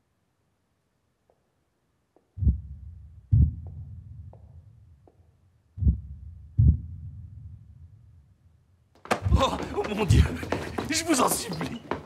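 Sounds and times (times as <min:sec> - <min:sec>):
deep booming thuds with echo: 0:02.4 - 0:04.7, 0:05.8 - 0:07.6
heels clicking on hard floor: 0:09.0 - 0:12.0.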